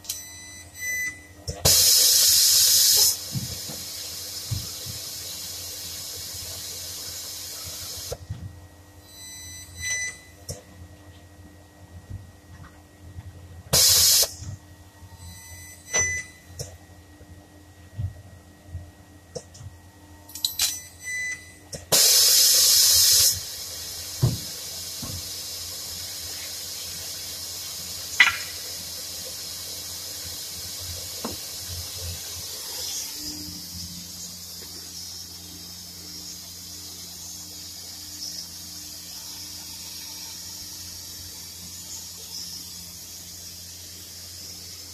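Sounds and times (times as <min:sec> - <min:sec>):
spot welder bursts: 0:13.7 - 0:14.4, 0:21.9 - 0:24.8.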